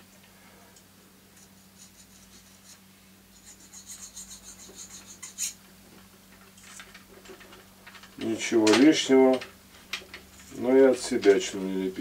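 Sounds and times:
needle file rasping on metal: 0:01.8 - 0:05.6.

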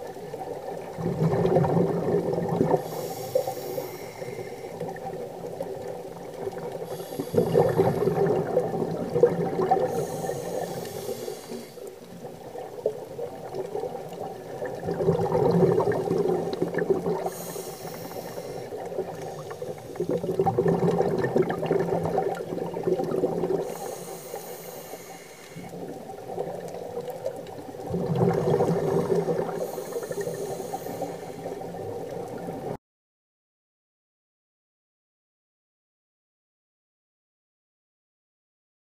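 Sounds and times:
exhaled bubbles rushing: 0:00.0 - 0:24.0, 0:25.6 - 0:32.8
regulator inhale hiss: 0:02.6 - 0:05.0, 0:06.2 - 0:08.4, 0:09.7 - 0:12.1, 0:17.1 - 0:20.2, 0:23.6 - 0:25.8, 0:29.2 - 0:31.8.

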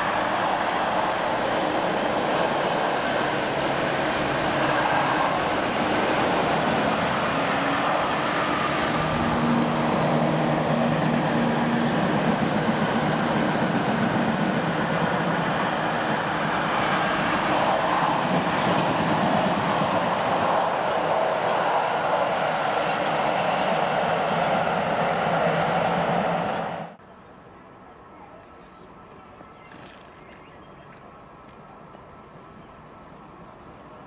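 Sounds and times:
train wheels rumbling on rail: 0:00.0 - 0:27.0.

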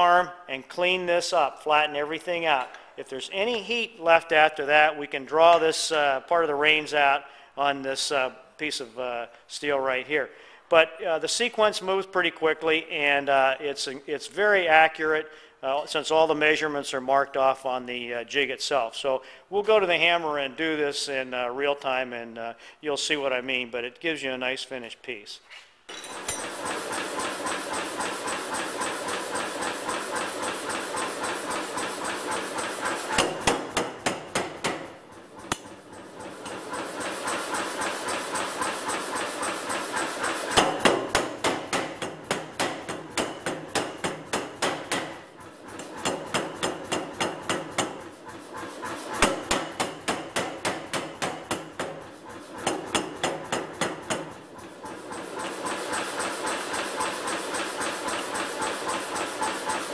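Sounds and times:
power hammer running noise: 0:25.9 - 0:59.9
power hammer blows on hot steel: 0:26.0 - 0:59.9.

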